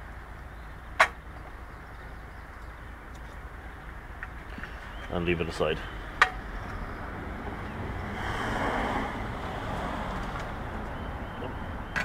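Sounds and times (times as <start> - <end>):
background noise: 0.0 - 12.0.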